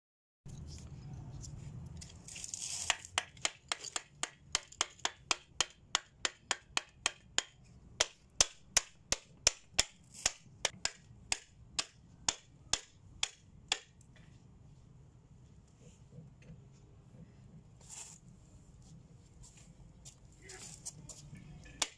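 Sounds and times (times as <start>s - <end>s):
short scraping rub: 17.8s - 18.3s.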